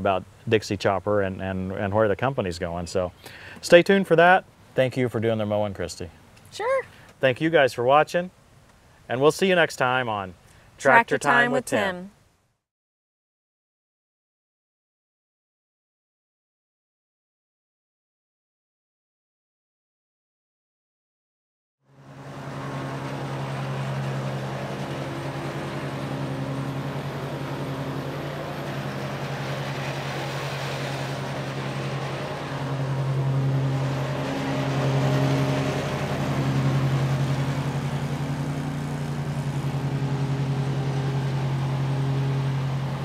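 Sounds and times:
lawn mower engine humming: 0:21.9 - 0:43.0.

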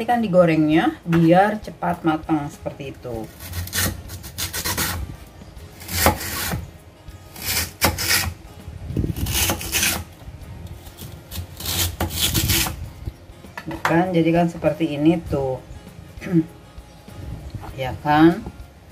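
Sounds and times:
knife slicing lotus root: 0:03.2 - 0:05.0, 0:05.8 - 0:06.6, 0:07.3 - 0:08.4, 0:09.1 - 0:10.1, 0:10.9 - 0:12.8.

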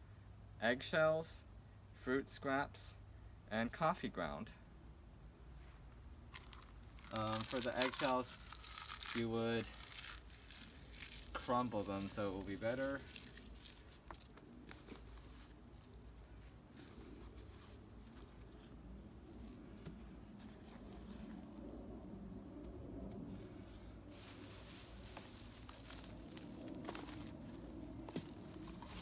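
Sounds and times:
high-pitched insect chorus: 0:00.0 - 0:29.0
faint rustling: 0:05.6 - 0:19.7
soft clicks of eggshells crumbling: 0:06.4 - 0:11.4.

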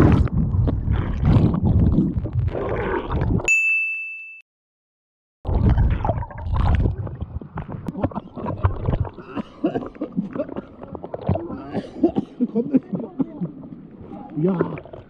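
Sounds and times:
underwater bubbling turbulence: 0:00.0 - 0:03.5, 0:05.5 - 0:15.0
faint voices: 0:10.7 - 0:14.9.

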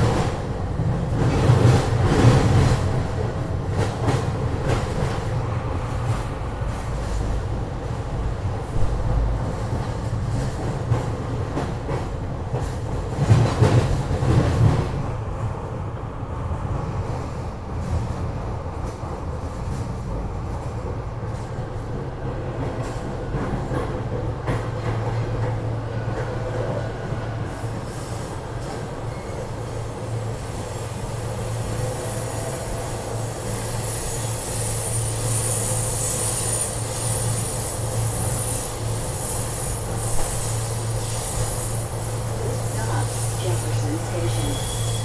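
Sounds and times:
train wheels rumbling on rails: 0:00.0 - 0:45.0
high hissing rail noise: 0:27.4 - 0:45.0.

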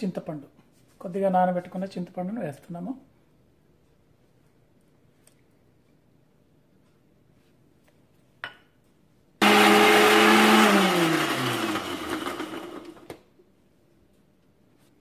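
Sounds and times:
mixer grinder running: 0:09.4 - 0:13.1.

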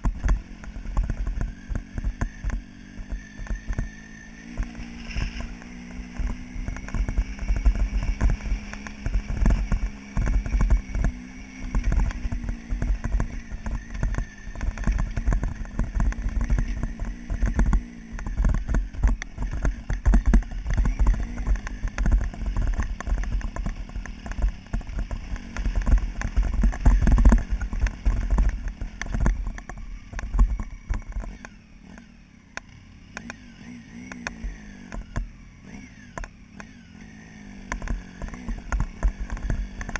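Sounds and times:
motorcycle engine running: 0:00.0 - 0:39.9
knocks and rattles over stones: 0:04.5 - 0:31.5.

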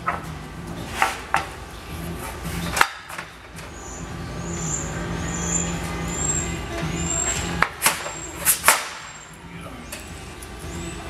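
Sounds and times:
short high squeak: 0:03.8 - 0:07.5.

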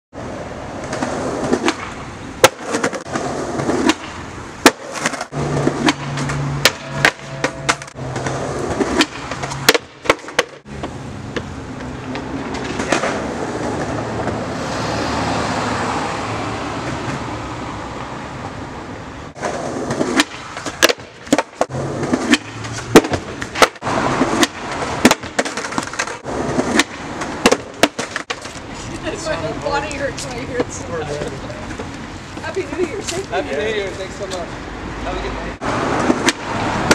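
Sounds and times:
skateboard wheels rolling on concrete: 0:00.1 - 0:36.9
wheels clacking over pavement cracks: 0:00.7 - 0:17.4, 0:19.3 - 0:36.9
skateboard pop: 0:00.8 - 0:11.5, 0:19.4 - 0:28.6, 0:36.0 - 0:36.9.

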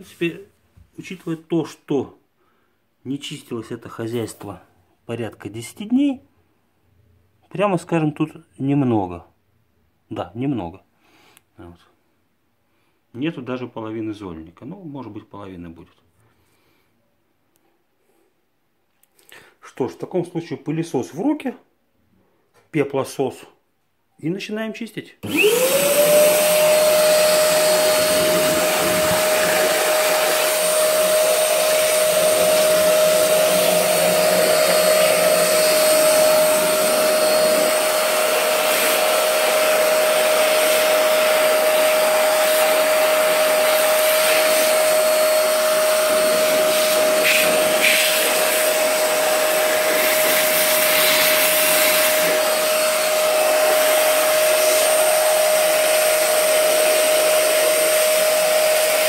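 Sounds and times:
vacuum cleaner running: 0:25.2 - 0:59.0.

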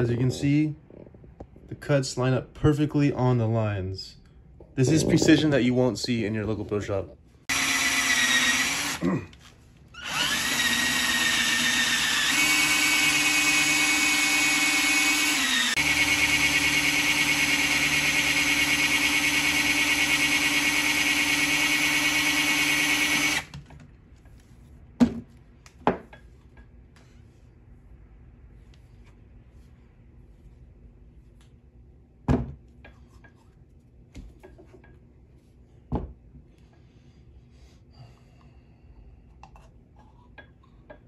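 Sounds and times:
cordless drill boring: 0:07.5 - 0:09.0, 0:10.0 - 0:23.5.

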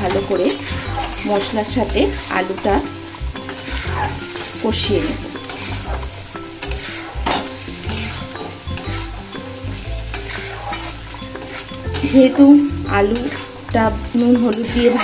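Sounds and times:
food sizzling: 0:00.0 - 0:15.0
metal spatula scraping pan: 0:00.0 - 0:15.0.

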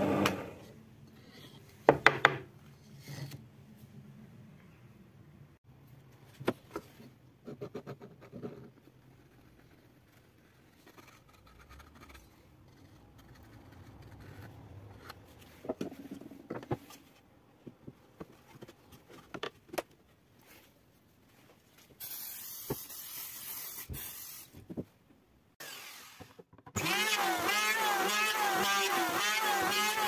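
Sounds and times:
wooden pieces knocking and scraping: 0:15.0 - 0:20.0.

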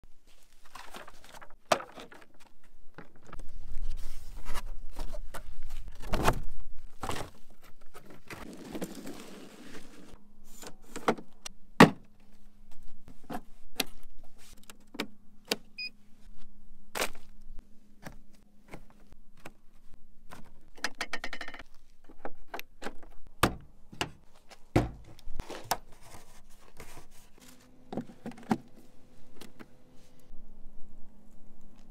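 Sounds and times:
clicks knocks and clatter of equipment: 0:20.2 - 0:25.9
faint steady hum: 0:21.6 - 0:31.9.

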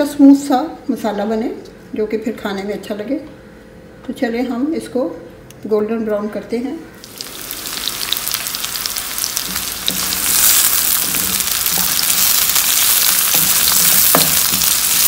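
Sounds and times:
onions sizzling in hot oil: 0:07.0 - 0:15.0.

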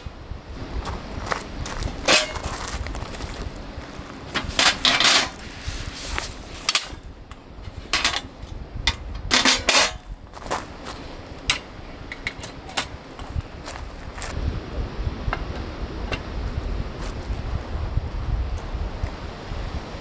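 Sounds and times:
wind on microphone: 0:00.0 - 0:20.0
metal table parts knocking: 0:08.9 - 0:10.0.

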